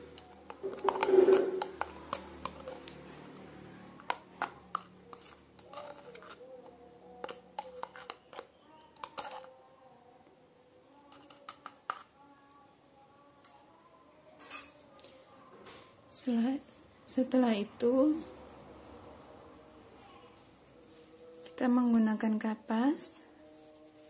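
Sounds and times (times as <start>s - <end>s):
metal spoon scraping plastic cup: 0.1s - 3.0s, 4.0s - 9.6s, 11.1s - 12.2s.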